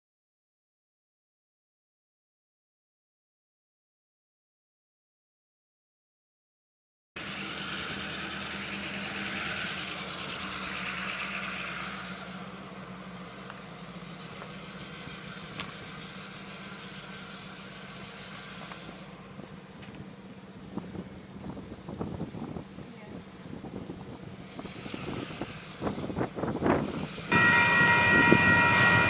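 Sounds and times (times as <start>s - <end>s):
vehicle engine running: 7.2s - 29.0s.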